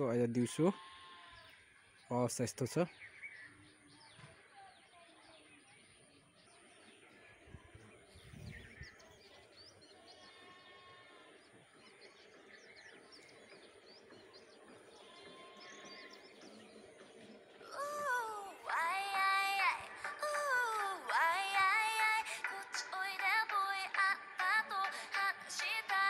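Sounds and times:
faint birds chirping: 0:00.0 - 0:26.0.

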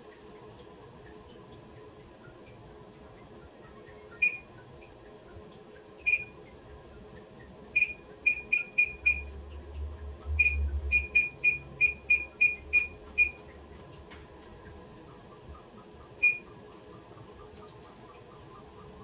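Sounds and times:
washing machine button beeps: 0:04.2 - 0:04.5, 0:06.0 - 0:06.4, 0:07.8 - 0:09.3, 0:10.4 - 0:13.4, 0:16.2 - 0:16.5.

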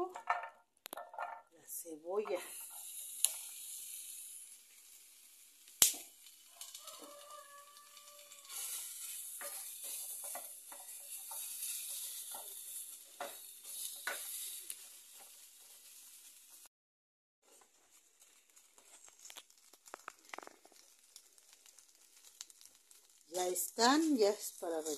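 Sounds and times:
garlic and onion sizzling: 0:00.0 - 0:16.7, 0:17.4 - 0:24.9
fire crackling: 0:00.8 - 0:16.7, 0:17.5 - 0:24.9
wooden spoon scraping in pan: 0:02.2 - 0:05.2, 0:06.6 - 0:16.7, 0:17.4 - 0:23.2
sharp pop: 0:05.8 - 0:06.1.

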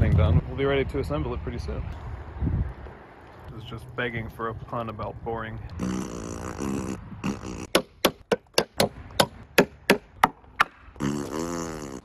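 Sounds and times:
wooden mallet knocking timber: 0:07.7 - 0:10.8.

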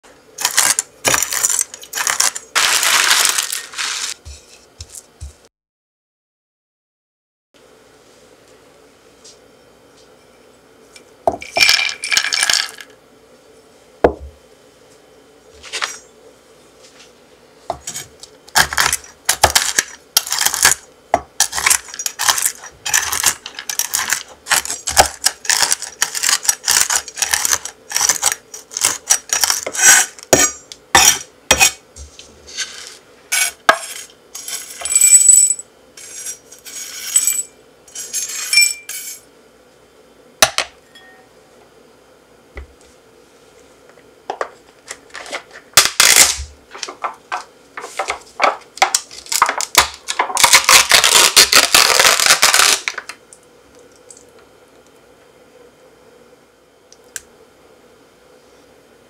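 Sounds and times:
pistachios rattling onto a board: 0:00.4 - 0:04.2, 0:11.4 - 0:12.9.

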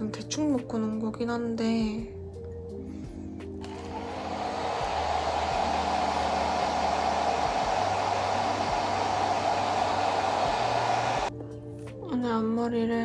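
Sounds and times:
hair dryer blowing: 0:03.6 - 0:11.3.

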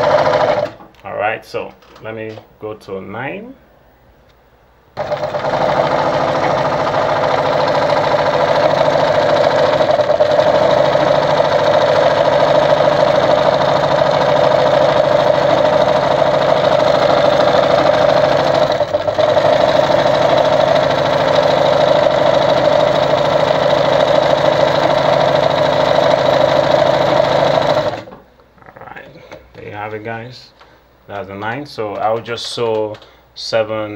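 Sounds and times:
electric sewing machine running: 0:00.0 - 0:00.8, 0:05.0 - 0:28.2.

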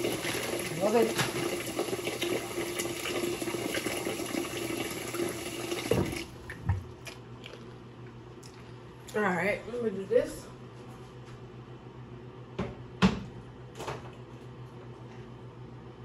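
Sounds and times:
faucet running into sink: 0:00.0 - 0:06.4.

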